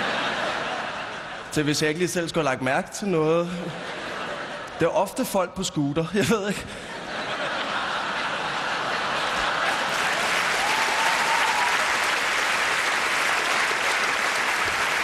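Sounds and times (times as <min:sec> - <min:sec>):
audience applauding: 0:09.1 - 0:15.0.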